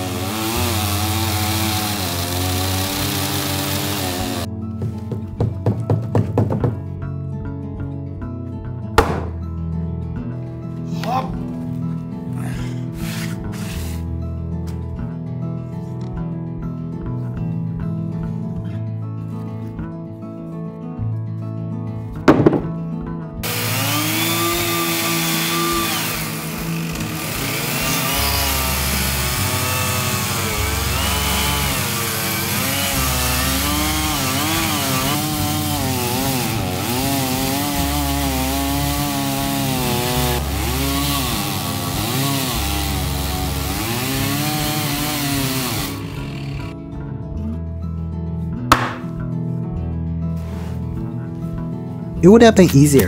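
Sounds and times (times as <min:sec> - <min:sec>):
power tool cutting wood: 0:00.0 - 0:04.5, 0:13.0 - 0:14.1, 0:23.4 - 0:46.8
background music: 0:00.0 - 0:53.0
sharp knock: 0:09.0 - 0:09.4, 0:22.3 - 0:22.8, 0:48.7 - 0:49.2.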